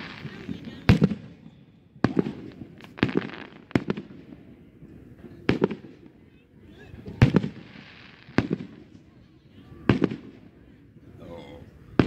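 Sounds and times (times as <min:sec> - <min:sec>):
fireworks bursting: 0:00.0 - 0:06.2, 0:07.0 - 0:09.2, 0:09.8 - 0:10.5.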